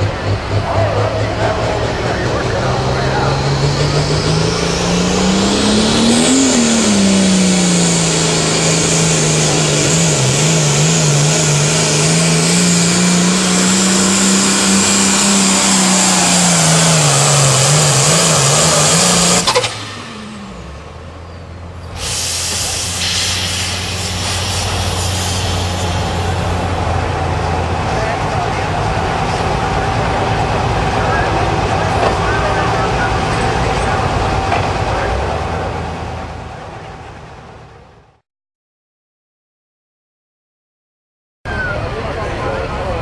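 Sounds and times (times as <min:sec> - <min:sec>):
high whine: 0:00.0 - 0:27.1
tractor engine at full throttle: 0:00.0 - 0:38.2.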